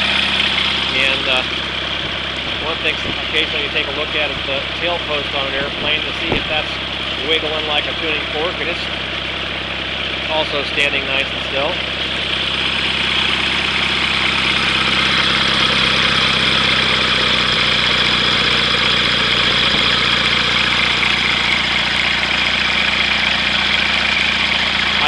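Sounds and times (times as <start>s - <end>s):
aircraft engine idling: 0.0s - 25.0s.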